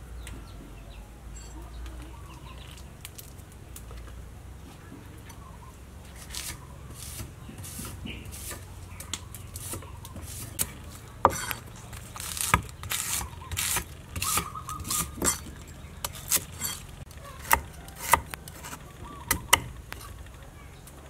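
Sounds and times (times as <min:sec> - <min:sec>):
soft cutting sounds: 0:06.0 - 0:20.1.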